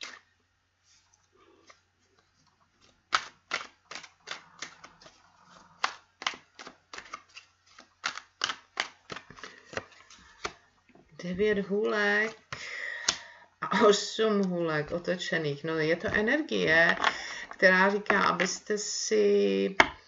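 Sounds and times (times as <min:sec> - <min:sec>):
cards being shuffled by hand: 0:01.6 - 0:10.7.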